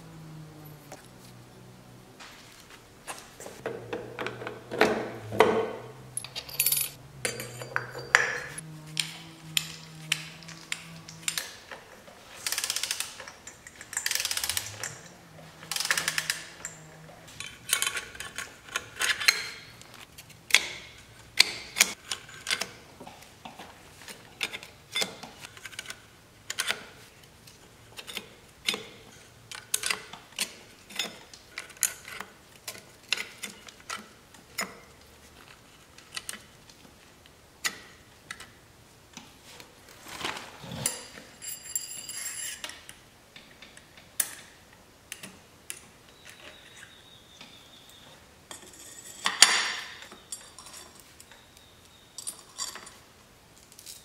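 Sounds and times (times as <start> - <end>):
metal tools clinking: 3.5 - 19.8, 40.6 - 42.9, 48.5 - 51.5, 52.1 - 53.1
ringing metallic clatter: 3.8 - 8.6.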